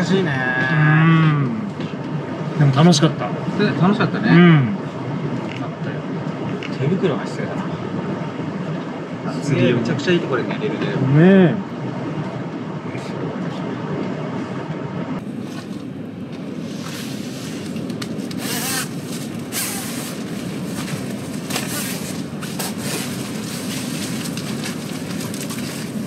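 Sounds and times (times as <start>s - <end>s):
wind rumbling on microphone: 4.6s - 26.0s
rustling: 15.3s - 26.0s.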